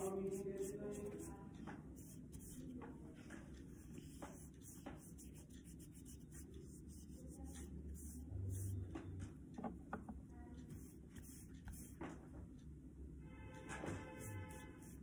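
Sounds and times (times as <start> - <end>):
paintbrush scratching on paper: 0.0 - 8.9, 10.7 - 12.1, 13.9 - 15.0.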